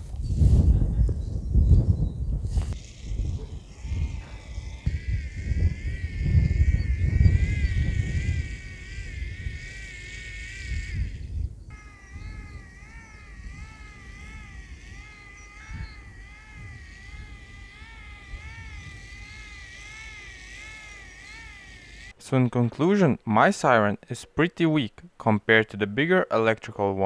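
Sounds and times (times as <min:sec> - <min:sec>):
hand-cranked siren wailing: 0:03.3 - 0:22.2.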